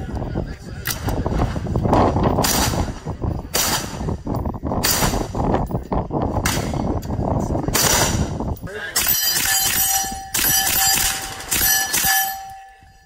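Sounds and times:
gunshots with echo: 2.4s - 4.2s, 4.8s - 5.4s, 7.7s - 12.6s.

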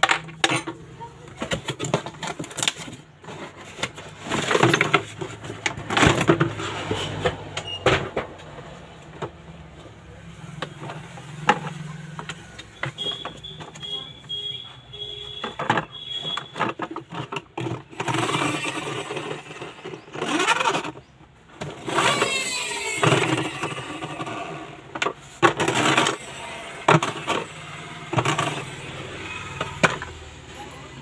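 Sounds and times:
toy car electronic engine sounds: 10.5s - 31.0s.

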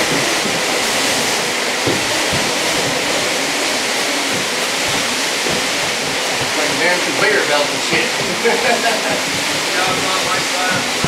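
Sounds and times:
carpet dragged along floor: 0.0s - 11.0s
soft thumps: 0.0s - 11.0s.

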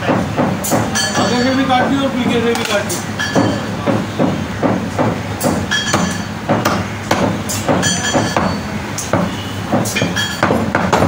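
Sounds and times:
cleaver chopping meat and bone: 3.4s - 11.0s.

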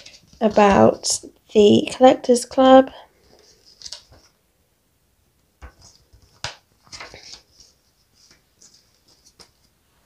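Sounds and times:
paper and plastic rustling: 0.0s - 1.2s, 3.2s - 4.4s, 5.6s - 9.8s.

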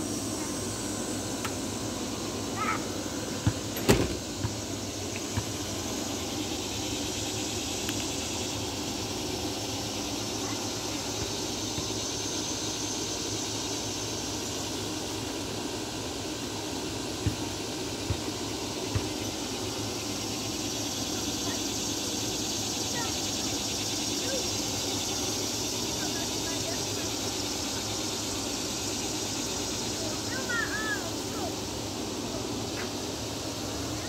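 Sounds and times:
high hiss: 0.0s - 34.0s.

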